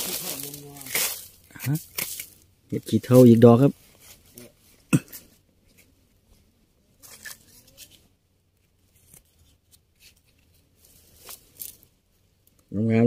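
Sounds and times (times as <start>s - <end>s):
knife scraping through mushroom and soil: 0.0s - 2.4s.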